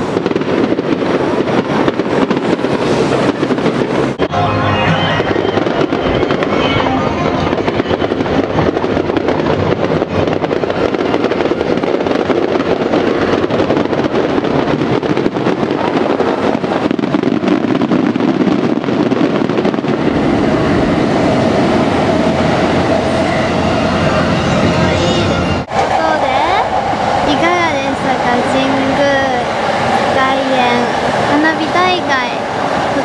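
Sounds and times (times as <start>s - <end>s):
electric train passing: 0.0s - 14.6s, 19.7s - 33.0s
fireworks bursting: 0.0s - 25.0s.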